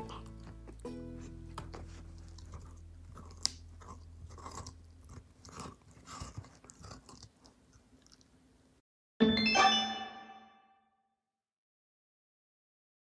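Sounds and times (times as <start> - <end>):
carrot cracking: 0.0 - 8.3
dog crunching a carrot: 0.0 - 8.4.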